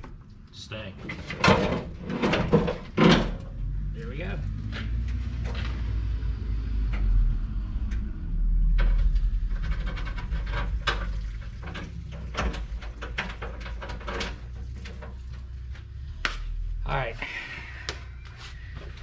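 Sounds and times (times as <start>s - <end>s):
truck fender knocking and clattering: 1.1s - 3.6s, 8.8s - 15.4s.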